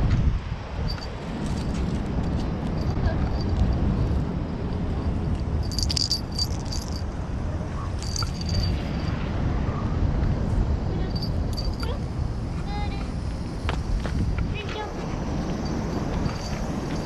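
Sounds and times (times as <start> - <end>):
steady low rumble: 0.0 - 17.0
light metallic jingling: 0.8 - 9.3, 10.9 - 13.0, 15.3 - 17.0.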